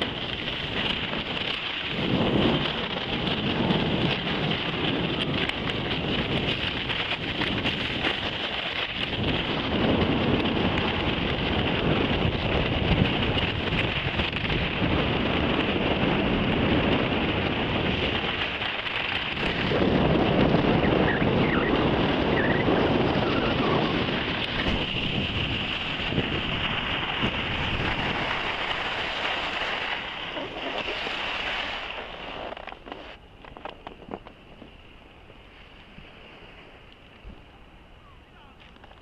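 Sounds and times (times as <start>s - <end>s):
wind rushing over microphone: 0.0s - 39.0s
skis hissing across snow: 22.2s - 33.2s.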